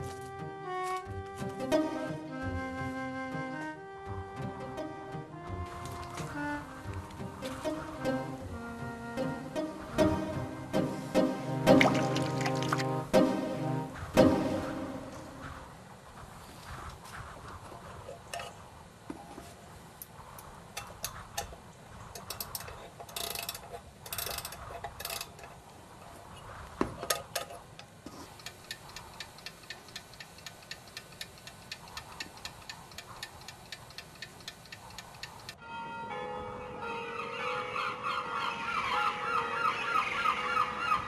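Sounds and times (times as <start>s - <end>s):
mechanical clock ticking: 27.1s - 35.6s
scattered clicks: 27.2s - 35.6s.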